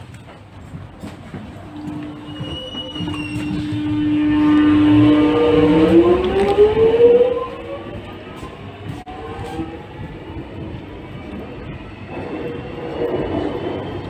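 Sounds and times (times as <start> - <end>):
train rumble: 0.0 - 14.0
electric train motors whining: 1.6 - 14.0.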